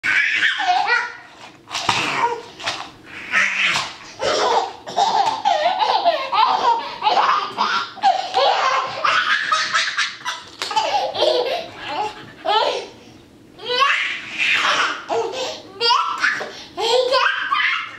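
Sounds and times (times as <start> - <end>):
toddler laughing: 3.3 - 13.0.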